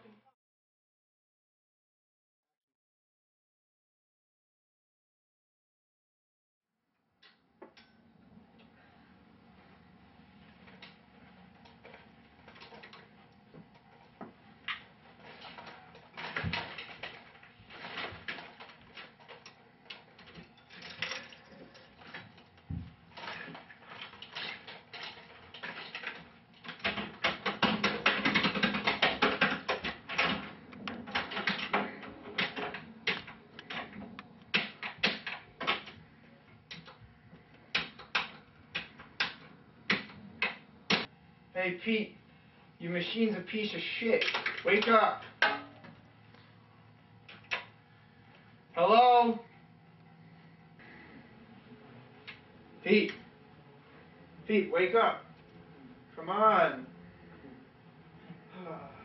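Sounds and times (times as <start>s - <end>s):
pinball flippers and ball clacking: 11.6s - 36.0s, 37.7s - 41.1s, 44.0s - 46.0s.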